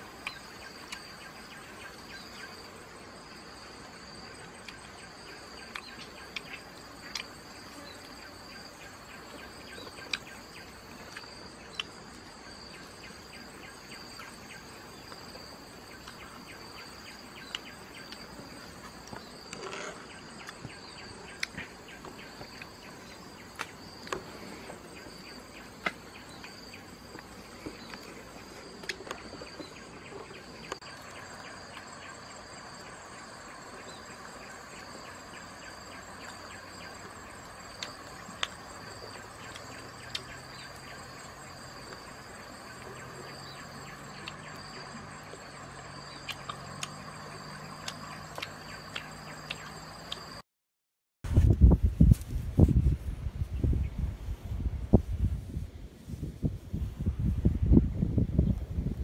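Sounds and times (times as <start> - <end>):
insects trilling: 0.0 - 50.4.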